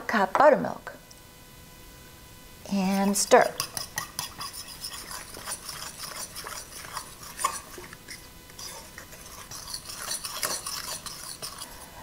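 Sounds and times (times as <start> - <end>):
fork clicking and scraping bowl: 2.8 - 11.9.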